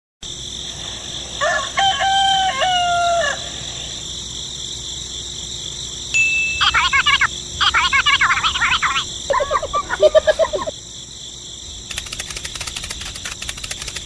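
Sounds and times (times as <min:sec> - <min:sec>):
steady high hiss: 0:00.2 - 0:14.0
rooster crowing: 0:01.3 - 0:04.1
rapid chirping: 0:06.2 - 0:10.9, 0:11.8 - 0:14.0.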